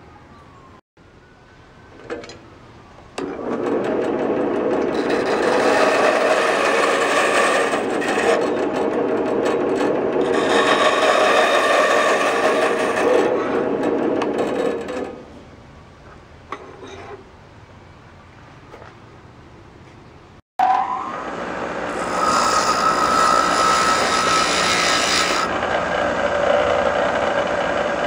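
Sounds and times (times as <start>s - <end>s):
band saw cutting stone: 3.3s - 15.0s, 21.6s - 28.0s.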